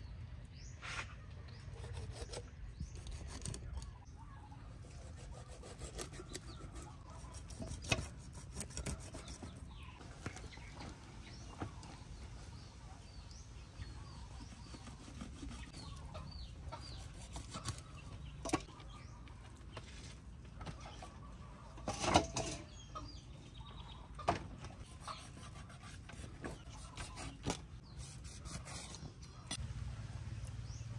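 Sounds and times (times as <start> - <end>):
chickens clucking: 15.6 - 25.4.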